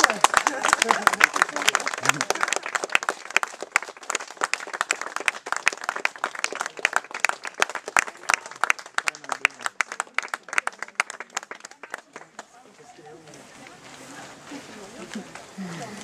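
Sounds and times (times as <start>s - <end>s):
person clapping close to microphone: 0.0s - 12.5s
group applauding: 0.0s - 13.0s.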